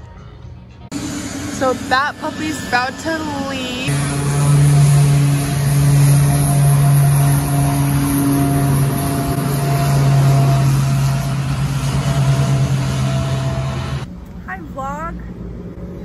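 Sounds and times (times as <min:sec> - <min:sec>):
aircraft engines droning: 0:00.0 - 0:16.0.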